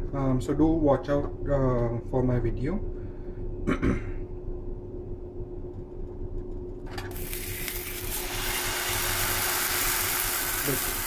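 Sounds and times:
faint steady hum: 0:00.0 - 0:11.0
batter sizzling in a frying pan: 0:07.1 - 0:11.0.

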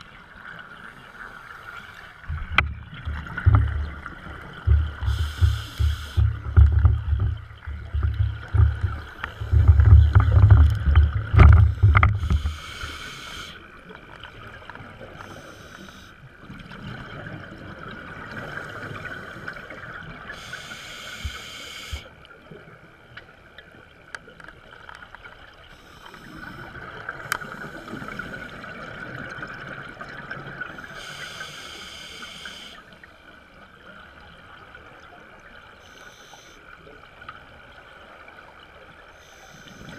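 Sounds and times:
burbling underwater bubbles: 0:02.3 - 0:12.5
scuba regulator breathing hiss: 0:05.1 - 0:06.3, 0:12.2 - 0:13.6, 0:15.2 - 0:16.2, 0:20.4 - 0:22.1, 0:25.8 - 0:26.7, 0:27.4 - 0:28.6, 0:30.8 - 0:32.9, 0:35.8 - 0:36.6, 0:39.2 - 0:39.9.

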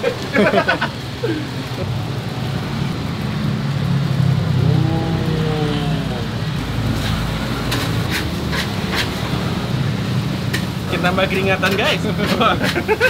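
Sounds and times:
fire roaring: 0:00.0 - 0:13.0
rice frying hiss: 0:00.0 - 0:13.0
metal shovel scraping a wok: 0:06.9 - 0:09.3, 0:11.7 - 0:12.9.

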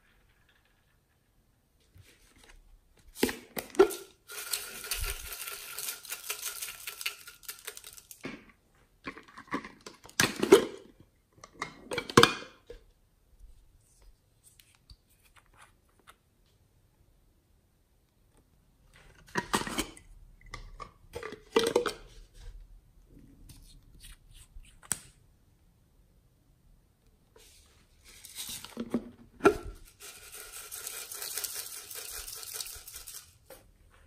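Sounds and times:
plastic containers clattering: 0:03.1 - 0:12.7, 0:20.6 - 0:22.1.

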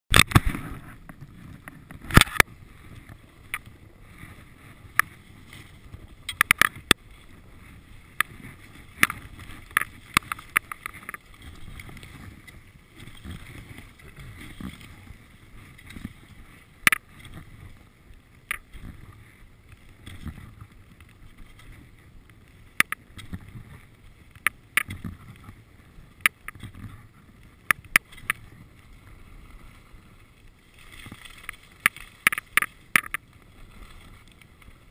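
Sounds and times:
sharp clicks and knocks: 0:00.1 - 0:02.5, 0:06.2 - 0:07.0, 0:31.4 - 0:33.2
skis sliding over snow: 0:00.2 - 0:34.9.

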